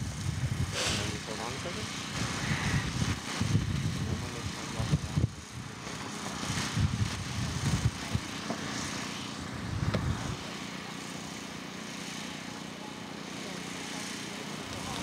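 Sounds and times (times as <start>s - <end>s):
wind buffeting microphone: 0.0s - 5.8s, 6.4s - 8.8s, 9.5s - 10.4s.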